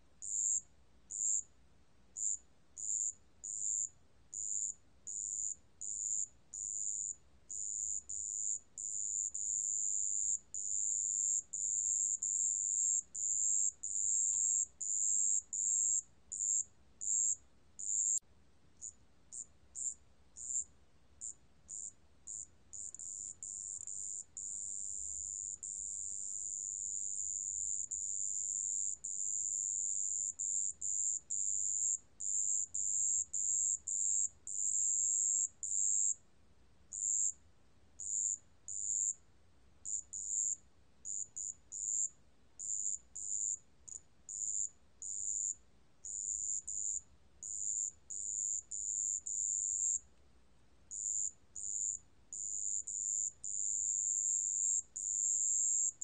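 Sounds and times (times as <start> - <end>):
cricket high pure trill: 18.8 - 36.2.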